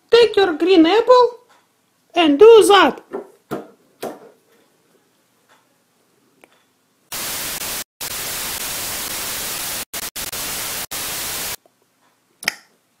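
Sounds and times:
tv static hiss: 7.1 - 11.6.

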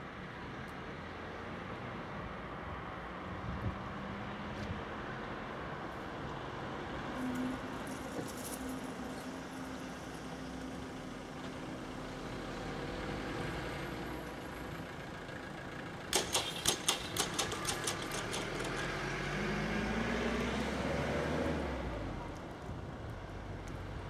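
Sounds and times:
vehicles running and idling: 0.0 - 24.0
sharp clicks or rattles: 16.1 - 19.1.

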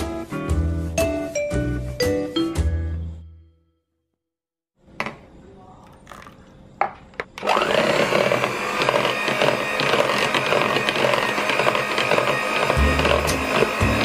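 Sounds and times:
electric hand mixer whirring: 7.4 - 14.0.

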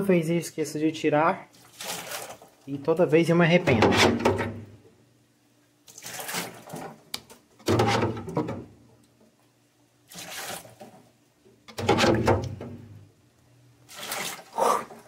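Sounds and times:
water splashing: 1.5 - 2.6, 5.9 - 6.9, 10.1 - 10.9, 13.8 - 15.0.

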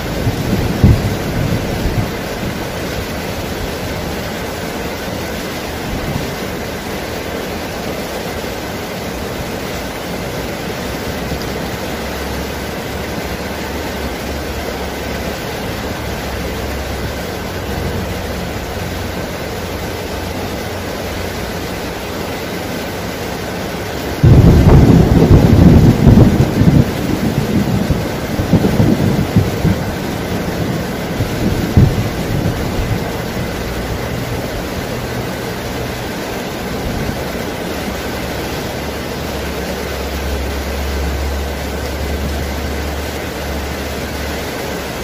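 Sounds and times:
thunder rumble: 0.0 - 4.7, 24.1 - 39.3
heavy rain falling: 0.0 - 45.0.

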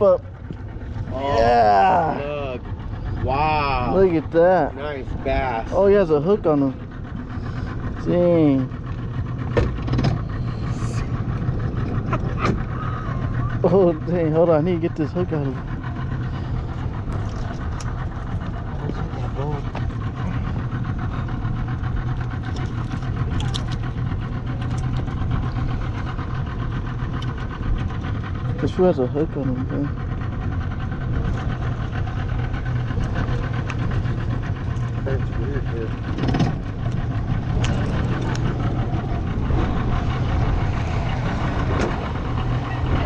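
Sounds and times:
boat engine idling: 0.0 - 43.0.

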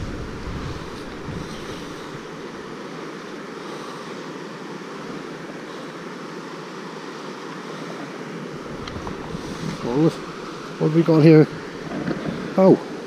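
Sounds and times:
wind on microphone: 0.0 - 2.8, 8.6 - 10.8
water rushing over weir: 0.0 - 13.0.

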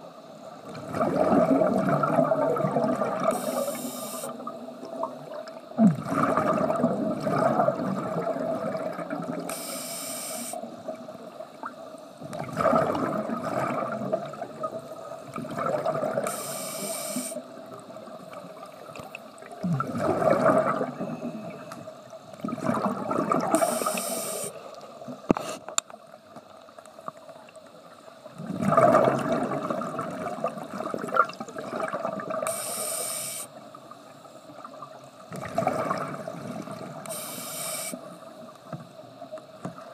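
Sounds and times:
exhaled bubbles rushing: 0.7 - 3.7, 4.3 - 9.5, 10.9 - 16.3, 17.5 - 21.7, 22.4 - 24.0, 28.3 - 32.5, 35.3 - 37.1
regulator inhale hiss: 3.3 - 4.5, 9.5 - 10.7, 16.2 - 17.5, 23.5 - 25.7, 32.4 - 33.6, 37.0 - 38.1.

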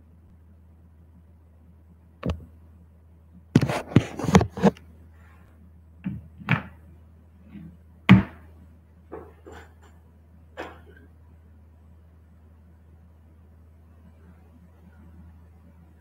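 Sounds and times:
low steady hum: 0.0 - 16.0
knocks and thumps: 6.0 - 6.8.

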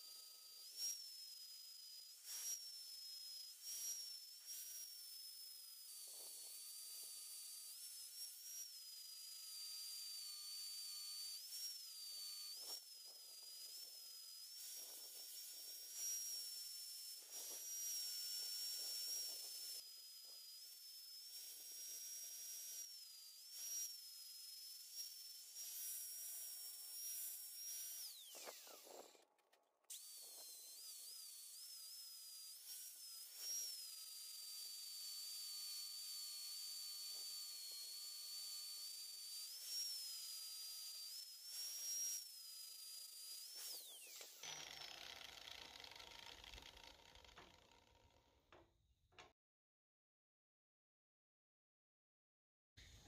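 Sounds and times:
angle grinder whining: 0.0 - 49.3.

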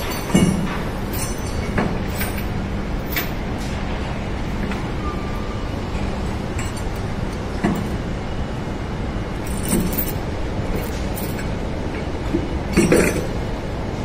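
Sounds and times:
sharp metallic clinks: 0.0 - 2.4
constant low hum: 0.0 - 14.0
heavy machinery rumble: 0.0 - 14.0.

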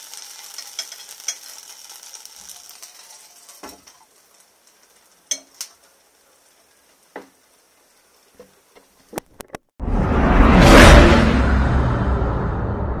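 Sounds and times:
frying pan sizzle: 0.0 - 9.5.

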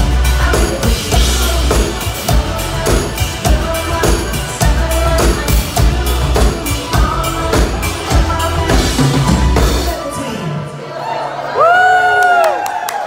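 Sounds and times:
drum kit beat: 0.0 - 10.2
live band playing: 0.0 - 10.7.

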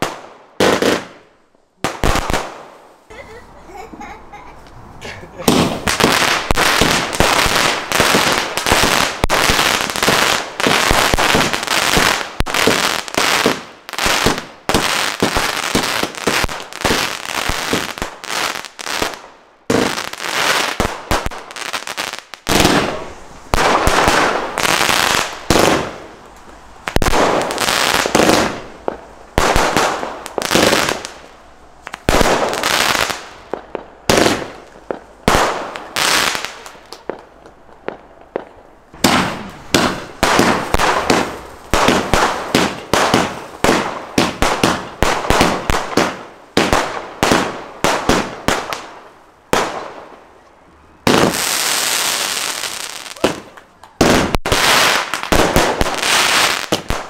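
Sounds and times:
firework launches and bangs: 5.4 - 21.5, 22.4 - 50.2.

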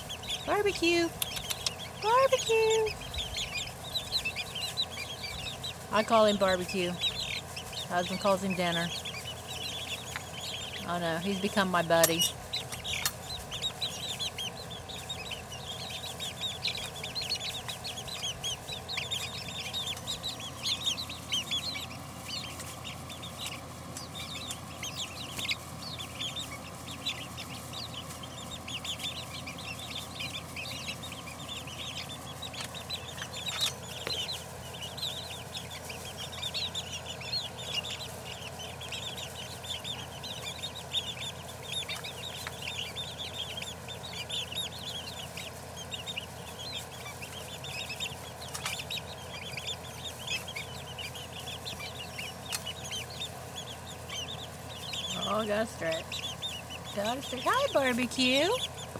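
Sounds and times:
chicks peeping: 0.0 - 58.9
sharp clicks: 1.1 - 1.8.

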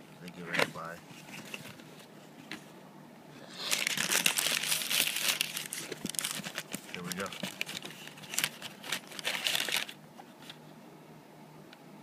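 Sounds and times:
tissue paper crinkling: 3.6 - 10.0.

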